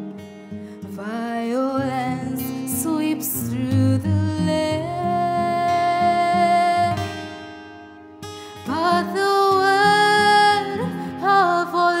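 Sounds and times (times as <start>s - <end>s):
woman singing gospel: 1.0s - 7.1s, 8.7s - 12.0s.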